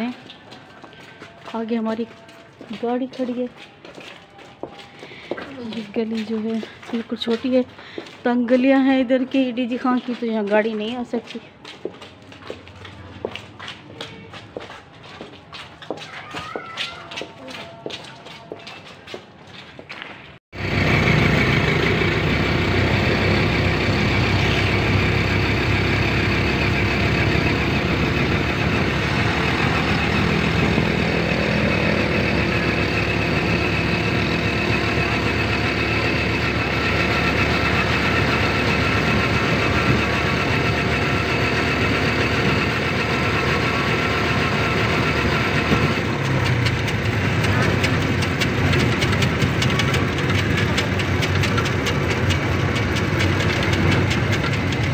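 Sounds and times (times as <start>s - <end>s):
car engine and road noise: 20.3s - 54.9s.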